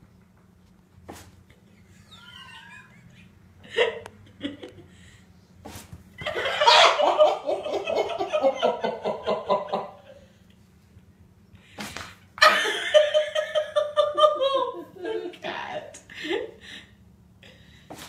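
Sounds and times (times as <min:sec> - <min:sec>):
person laughing hard: 0:01.6 - 0:04.9, 0:06.2 - 0:10.2, 0:12.4 - 0:15.4.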